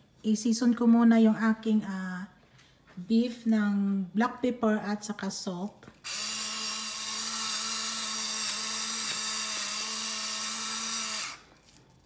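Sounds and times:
electric pepper grinder motor: 6.0 - 11.7.

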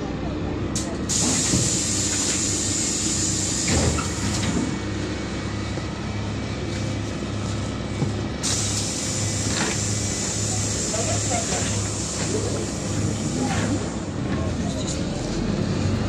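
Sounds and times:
bus engine running: 0.0 - 16.0
hiss: 1.1 - 4.4, 8.4 - 14.0.

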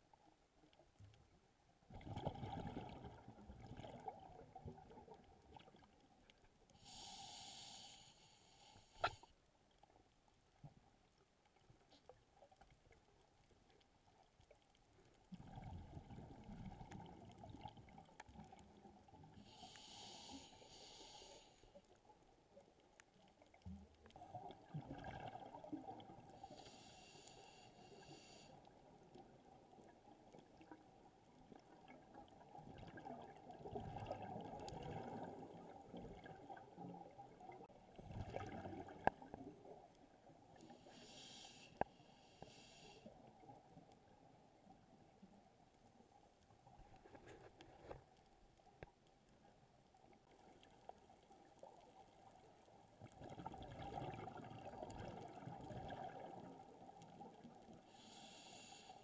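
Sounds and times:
underwater bubbles gurgling: 1.9 - 7.6, 10.6 - 45.3, 47.8 - 58.7
regulator air hiss: 6.8 - 9.2, 19.6 - 21.6, 40.9 - 43.0.

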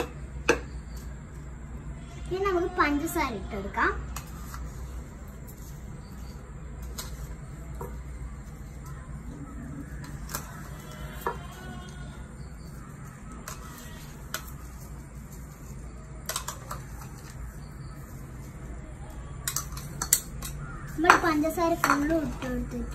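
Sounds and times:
plastic spoon tapping plastic bowls: 19.4 - 22.5.

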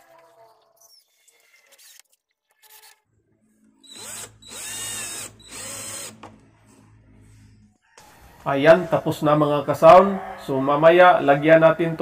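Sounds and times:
cordless drill driving screws: 3.8 - 6.2.

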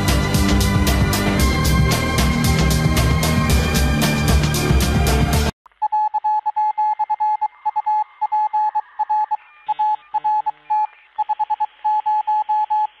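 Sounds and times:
morse code beeps: 5.8 - 13.0.

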